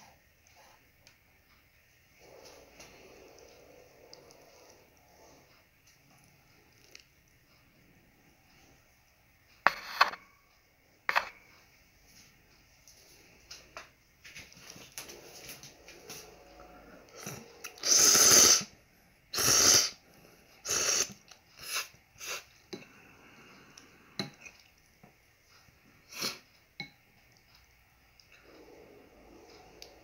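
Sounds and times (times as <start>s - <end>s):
person slurping noodles: 17.1s - 18.7s, 19.4s - 20.0s, 20.6s - 22.5s.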